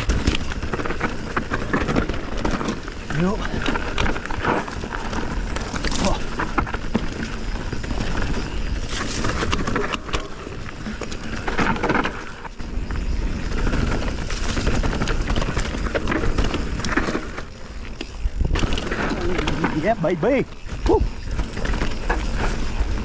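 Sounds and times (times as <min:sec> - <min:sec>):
bike clattering over bumps: 0:00.0 - 0:23.0
bike tyres rolling on dirt: 0:00.0 - 0:23.0.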